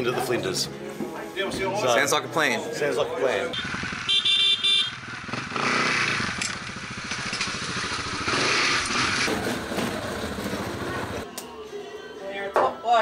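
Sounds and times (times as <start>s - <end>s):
dirt bike engine revving: 3.5s - 11.2s.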